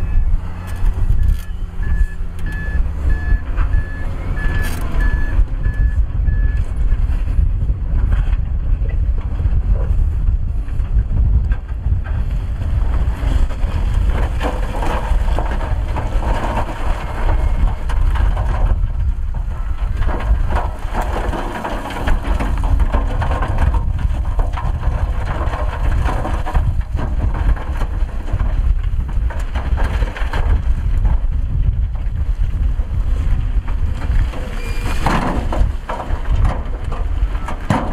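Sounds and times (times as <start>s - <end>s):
truck engine rumble: 0.0s - 37.9s
rock and soil tumbling out: 12.2s - 37.9s.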